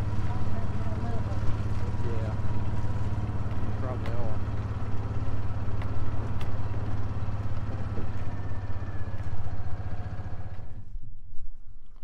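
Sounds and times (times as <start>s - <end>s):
engine droning: 0.0s - 11.0s.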